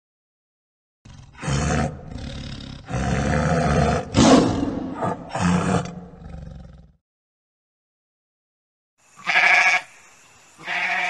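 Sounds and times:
tiger roaring: 0:01.1 - 0:07.0.

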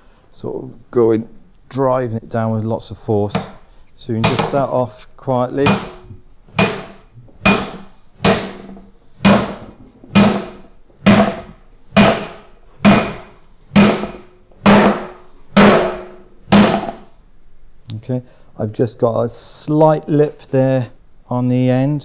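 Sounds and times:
maul striking metal hoop: 0:04.2 - 0:04.8, 0:05.6 - 0:17.0.

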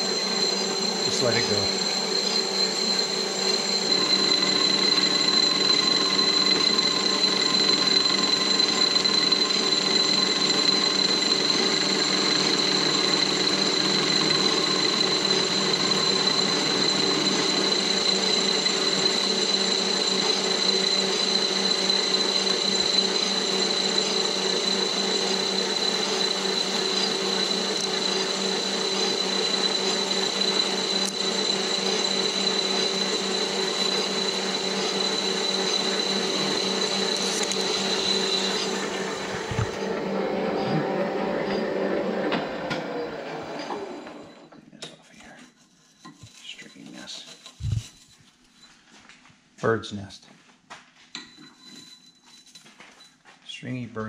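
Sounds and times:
cutting tool hissing in metal: 0:00.0 - 0:39.9
metal lathe whining: 0:00.0 - 0:44.6, 0:45.8 - 0:48.1, 0:51.2 - 0:53.0.

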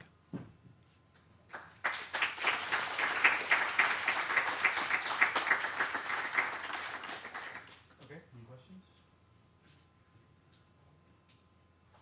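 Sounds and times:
audience applauding: 0:01.5 - 0:07.8.

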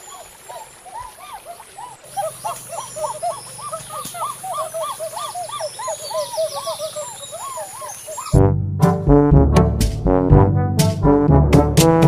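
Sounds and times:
birds calling: 0:00.0 - 0:08.4
brass music: 0:08.4 - 0:12.0.

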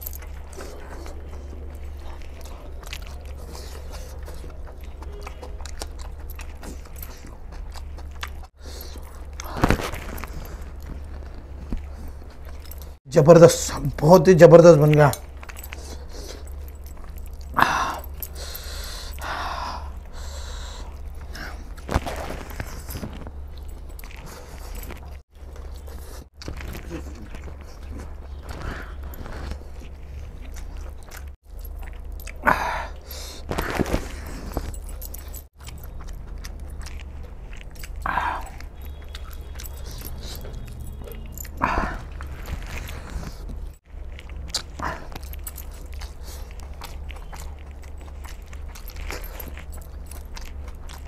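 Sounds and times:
wet chewing and mouth smacks: 0:00.0 - 0:13.0, 0:14.0 - 0:51.0.

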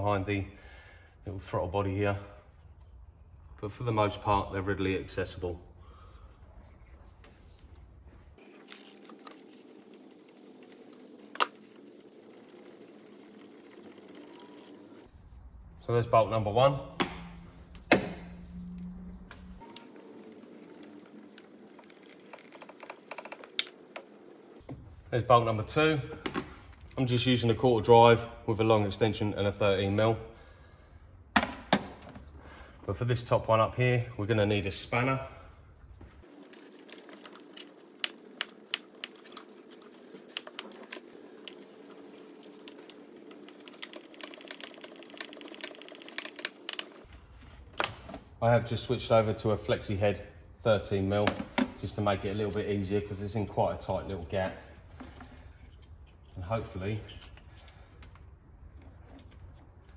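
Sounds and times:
ratchet clicking: 0:08.7 - 0:15.1
ratchet clicking rapidly: 0:08.7 - 0:15.1, 0:20.4 - 0:24.6, 0:40.3 - 0:47.1
low hum: 0:17.2 - 0:24.6.

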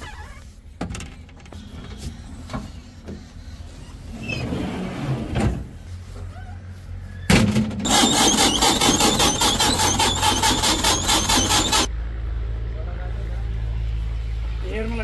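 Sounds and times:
diesel engine running: 0:06.0 - 0:14.8
loud rhythmic clatter: 0:07.9 - 0:11.9.

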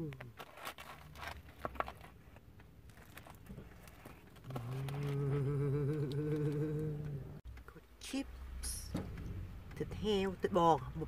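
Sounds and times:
person humming while eating: 0:04.4 - 0:07.4.

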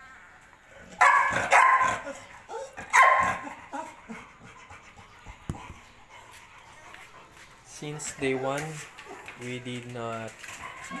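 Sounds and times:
dog barking: 0:01.0 - 0:02.2, 0:02.8 - 0:03.6.

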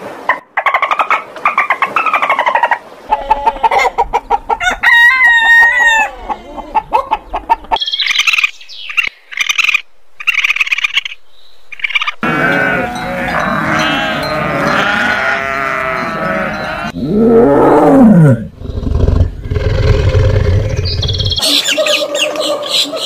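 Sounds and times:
monkey chirping rapidly: 0:07.8 - 0:12.2
goats bleating: 0:12.2 - 0:17.0
tiger roaring: 0:12.2 - 0:21.4
deep low growl: 0:16.9 - 0:21.4.

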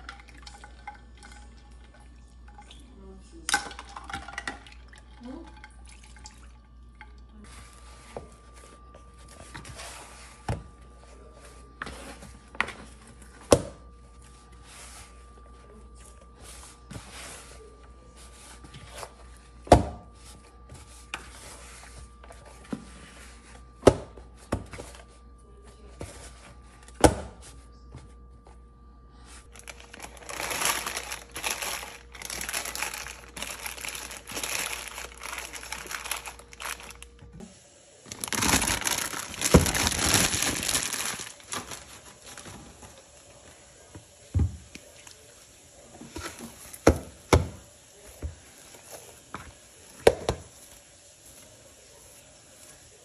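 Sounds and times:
dough kneaded by hand: 0:07.3 - 0:53.0
plastic film crinkling: 0:29.5 - 0:37.2, 0:38.0 - 0:43.0.

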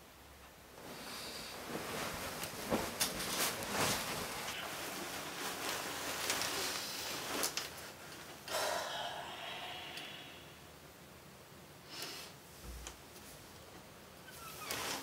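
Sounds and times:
long sighing exhale: 0:08.5 - 0:10.7
person breathing heavily: 0:08.5 - 0:10.7.

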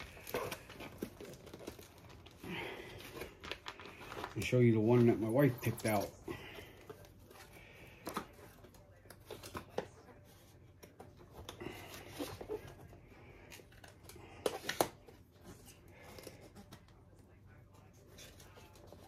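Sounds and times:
paper rustling: 0:00.0 - 0:10.4.

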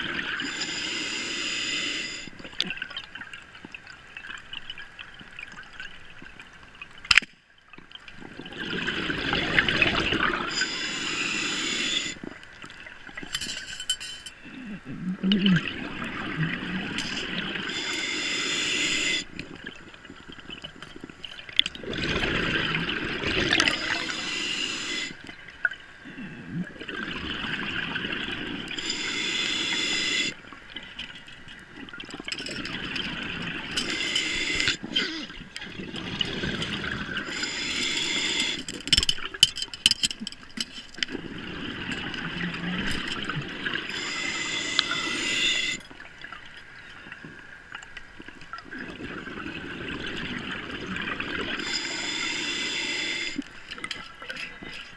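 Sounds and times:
regulator hiss: 0:00.4 - 0:02.3, 0:10.5 - 0:12.2, 0:17.7 - 0:19.3, 0:23.6 - 0:25.2, 0:28.8 - 0:30.4, 0:33.8 - 0:34.9, 0:37.2 - 0:38.7, 0:43.9 - 0:45.8, 0:51.6 - 0:53.4
exhaled bubbles rushing: 0:08.2 - 0:10.6, 0:14.9 - 0:17.7, 0:19.3 - 0:24.3, 0:26.5 - 0:28.8, 0:34.5 - 0:37.3, 0:48.6 - 0:51.6.

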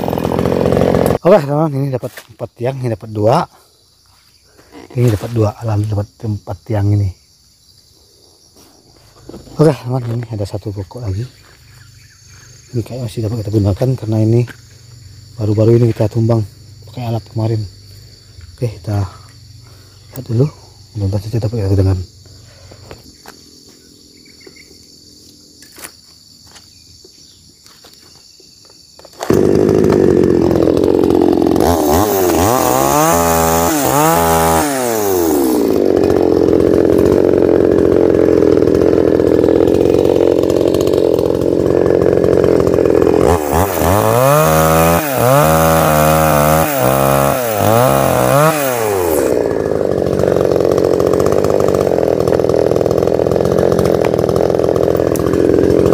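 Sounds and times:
chainsaw cutting wood: 0:00.0 - 0:01.3, 0:08.6 - 0:10.6, 0:28.9 - 0:55.9
faint insect buzz: 0:01.2 - 0:29.3.

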